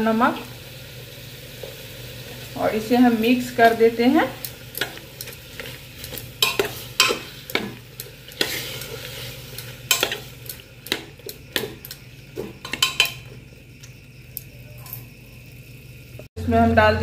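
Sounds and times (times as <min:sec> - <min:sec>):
food sizzling: 0:00.0 - 0:17.0
metal spoon scraping pot: 0:04.8 - 0:10.3
spoon clinking against pot: 0:06.4 - 0:07.8, 0:12.6 - 0:13.3.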